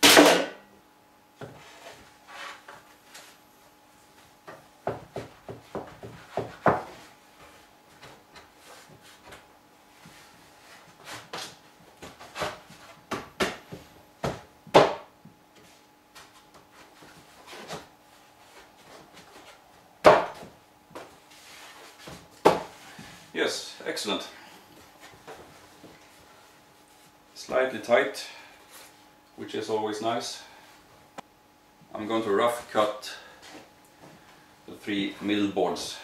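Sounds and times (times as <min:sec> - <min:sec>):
wood-on-wood knocks and rubbing: 0:04.5 - 0:07.0.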